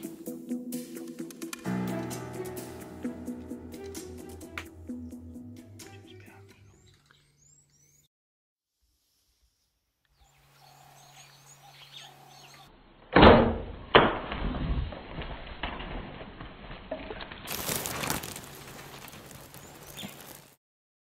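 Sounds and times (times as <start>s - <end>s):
birds chirping: 4.8s - 8.1s, 10.1s - 12.7s
sharp crack: 13.1s - 20.6s
hooves on dusty ground: 17.5s - 20.6s.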